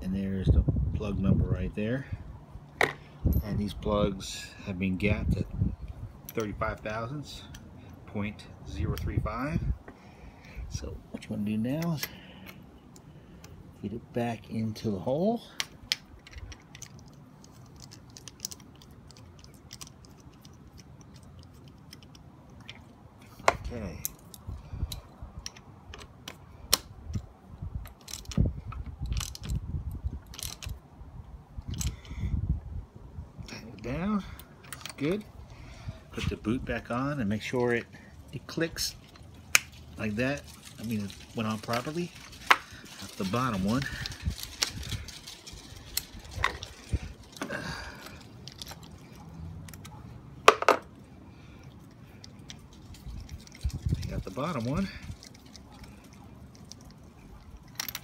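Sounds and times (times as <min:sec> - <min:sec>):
hands clicking and knocking wiring: 0:15.6 - 0:30.8, 0:39.0 - 0:51.0.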